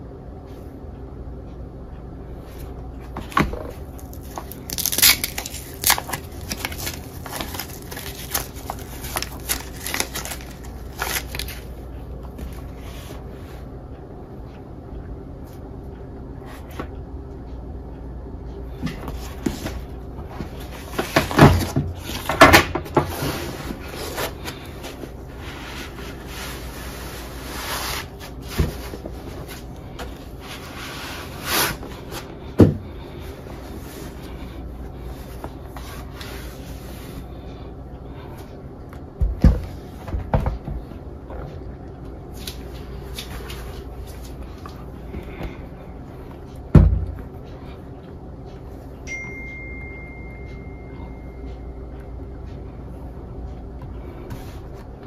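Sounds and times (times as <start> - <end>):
steady low hum: 0.0 - 55.0
packaging rustling: 4.0 - 11.7.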